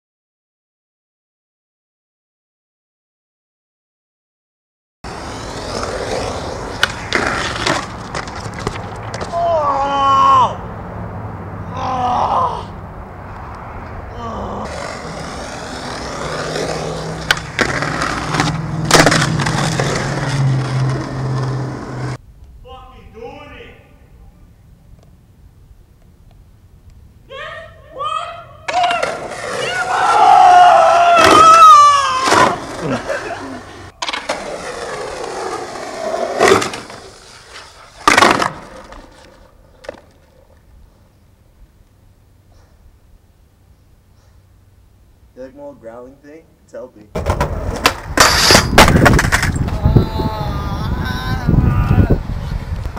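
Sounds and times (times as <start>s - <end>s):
skateboard wheels rolling on concrete: 5.0s - 12.6s, 13.2s - 52.9s
skateboard clacking on concrete: 5.6s - 9.4s, 14.7s - 20.2s, 33.9s - 40.7s, 47.1s - 49.8s.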